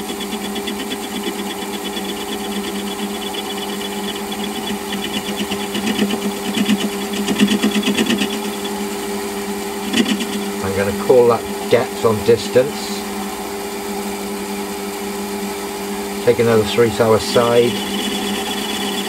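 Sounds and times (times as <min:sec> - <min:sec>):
fast regular ticking of cutting tool: 0:00.0 - 0:13.1, 0:16.0 - 0:19.0
lathe motor hum: 0:00.0 - 0:19.0.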